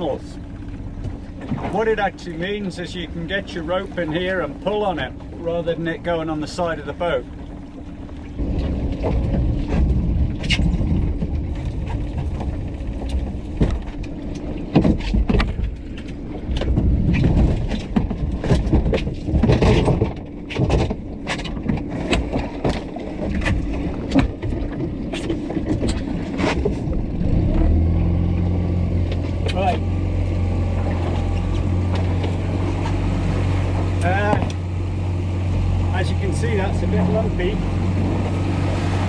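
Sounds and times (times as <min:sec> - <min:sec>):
outboard motor hum: 0:00.0 - 0:39.0
sea noise: 0:00.0 - 0:39.0
wind: 0:00.0 - 0:39.0
rope and creel knocking on hull: 0:07.4 - 0:34.8.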